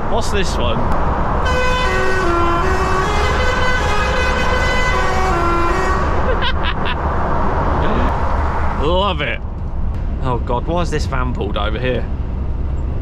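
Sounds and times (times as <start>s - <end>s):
truck driving drone: 0.0s - 13.0s
musical air horn tune: 1.5s - 6.1s.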